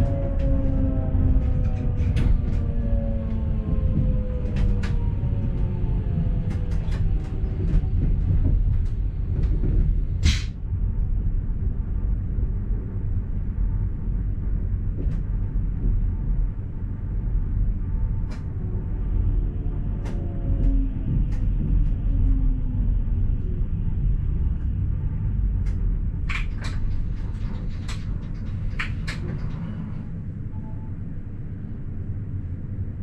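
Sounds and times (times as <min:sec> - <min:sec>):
traction drive whine: 0:00.0 - 0:10.4
train rumble: 0:00.0 - 0:33.0.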